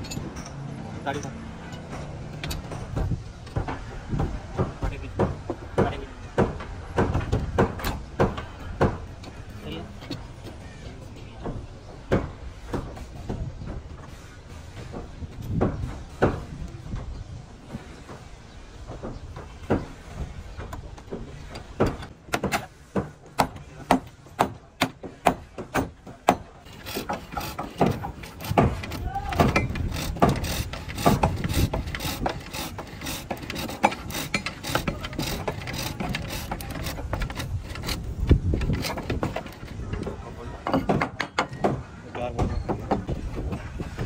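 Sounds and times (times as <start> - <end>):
hammer knocking on wood: 2.8 - 9.1, 20.6 - 44.0.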